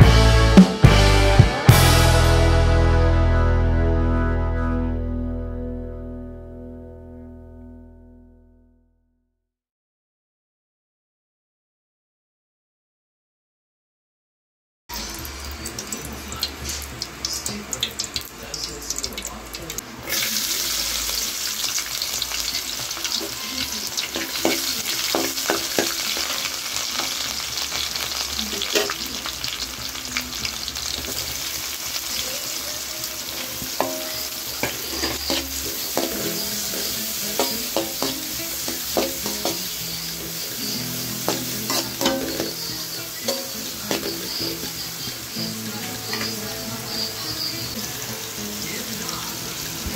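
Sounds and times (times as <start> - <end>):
food sizzling in hot oil: 14.9 - 49.9
ladle scraping a wok: 33.3 - 45.3.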